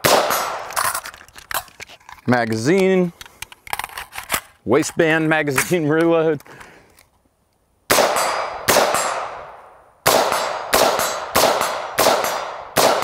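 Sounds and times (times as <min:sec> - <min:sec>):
rifle shots with echo: 0:00.0 - 0:00.7, 0:07.9 - 0:13.0.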